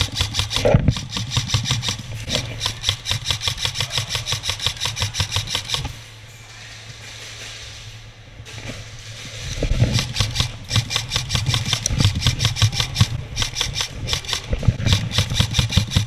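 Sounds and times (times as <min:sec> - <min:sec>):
rapid airsoft gunfire: 0:00.0 - 0:05.9, 0:09.8 - 0:16.0
steady low hum: 0:00.0 - 0:16.0.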